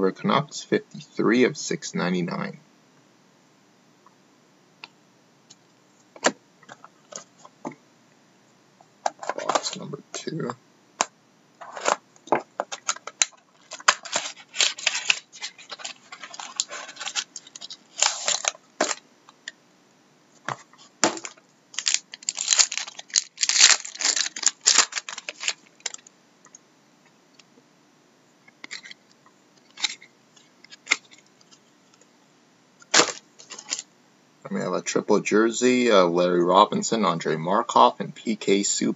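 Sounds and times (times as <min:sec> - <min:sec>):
cards being handled: 0:11.6 - 0:19.0
wrapper being torn open: 0:12.7 - 0:19.0, 0:21.2 - 0:26.0, 0:32.9 - 0:33.8.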